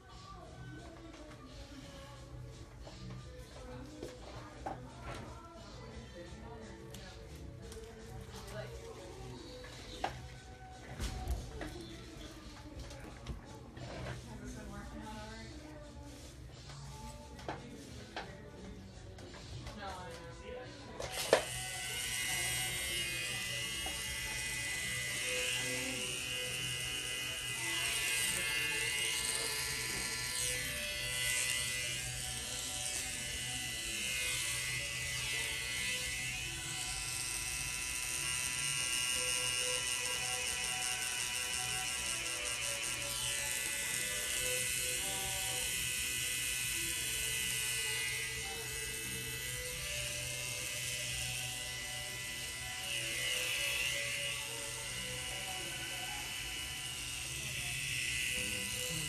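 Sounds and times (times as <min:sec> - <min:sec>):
tattoo machine buzzing: 0:21.1 - 0:59.0.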